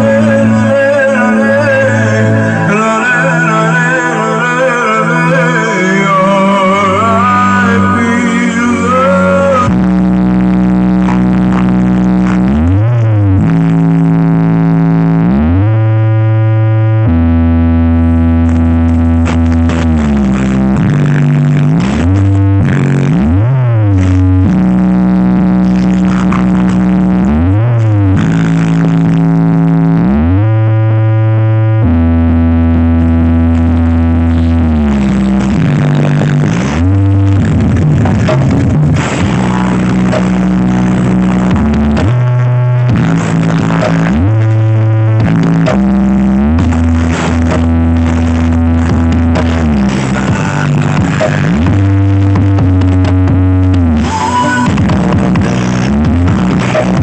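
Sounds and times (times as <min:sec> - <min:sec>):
person singing: 0:00.0 - 0:10.3, 0:46.5 - 0:53.2
deep bass drone: 0:00.0 - 0:57.0
remix music over loudspeakers: 0:00.0 - 0:57.0
steady bass line: 0:00.0 - 0:57.0.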